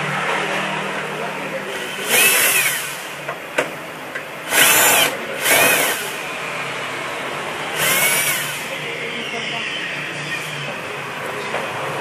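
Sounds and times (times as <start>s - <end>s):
cordless drill motor whine: 2.1s - 3.0s, 4.5s - 6.2s, 7.8s - 8.8s.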